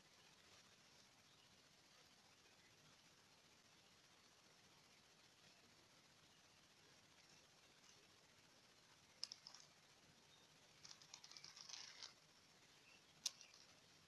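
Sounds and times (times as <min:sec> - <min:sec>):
faint handling clicks: 0:09.2 - 0:09.8, 0:10.8 - 0:12.2, 0:13.2 - 0:13.8
rustling: 0:09.2 - 0:09.8, 0:10.8 - 0:12.4, 0:13.2 - 0:14.0.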